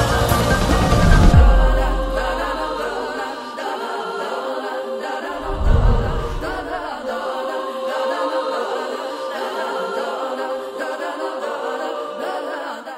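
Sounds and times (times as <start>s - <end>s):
choir singing sustained note: 0.0s - 12.9s
deep boom: 1.0s - 2.1s, 5.4s - 6.8s.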